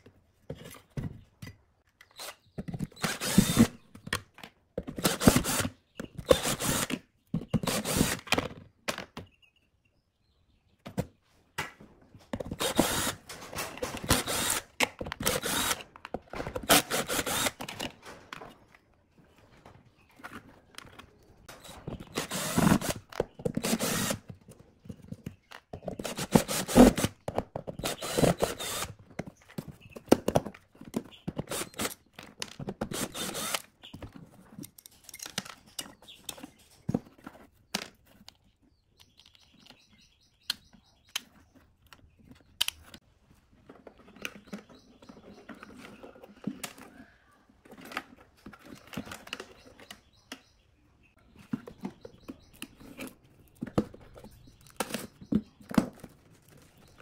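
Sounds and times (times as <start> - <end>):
cordless drill running: 3.0 - 3.7, 5.1 - 5.7, 6.3 - 7.0, 7.6 - 8.3, 12.6 - 13.2, 14.0 - 15.8, 16.7 - 17.6, 22.1 - 23.0, 23.6 - 24.2, 26.1 - 27.1, 27.8 - 28.9, 31.5 - 32.0, 32.9 - 33.6
clicks and rattles of handling: 12.2 - 22.2, 28.8 - 50.5.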